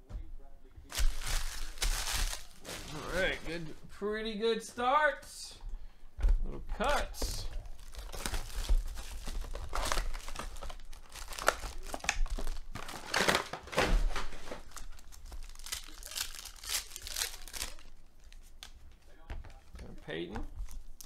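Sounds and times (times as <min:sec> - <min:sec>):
foil wrappers crinkling and tearing: 0:00.9 - 0:03.7, 0:07.7 - 0:18.8.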